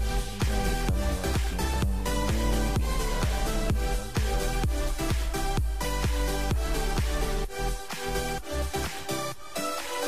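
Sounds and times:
electronic dance music: 0:00.0 - 0:10.0.

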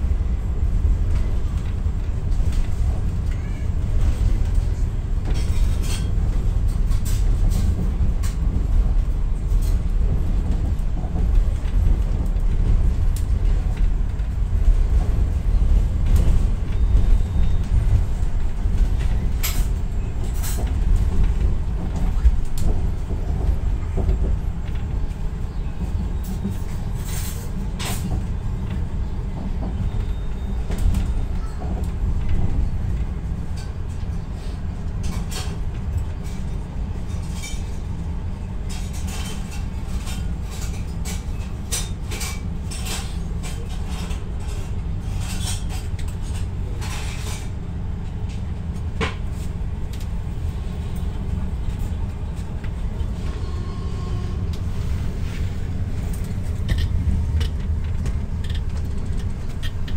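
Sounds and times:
train rumbling on track: 0:00.0 - 0:59.9.

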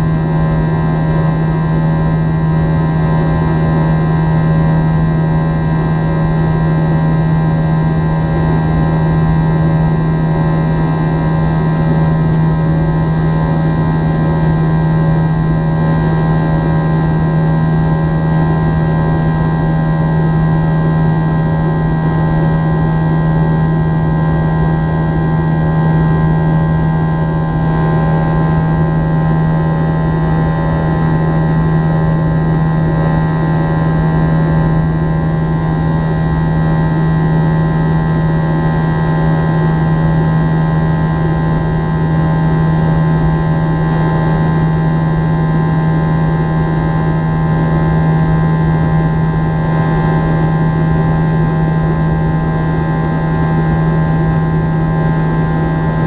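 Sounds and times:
jet engine cabin drone: 0:00.0 - 0:56.0.

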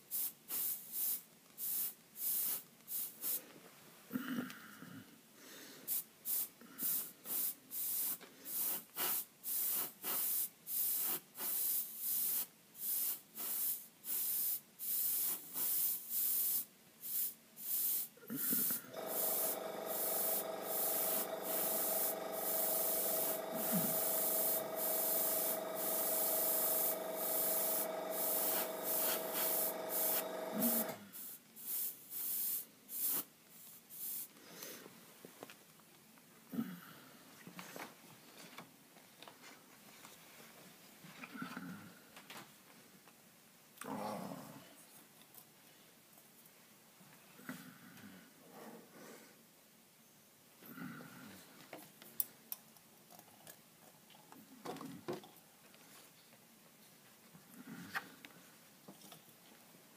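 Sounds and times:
airbrush spraying hiss: 0:00.0 - 0:03.4, 0:05.9 - 0:34.3.

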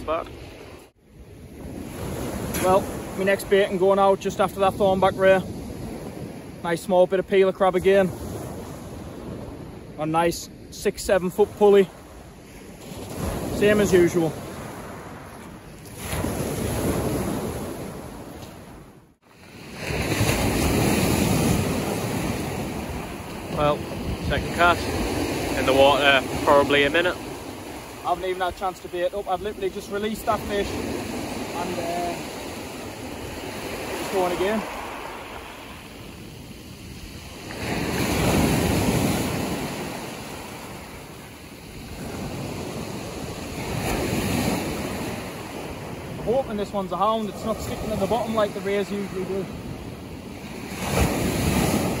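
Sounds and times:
waves washing up a beach: 0:00.0 - 0:52.0
wind rumbling on microphone: 0:12.0 - 0:46.6.

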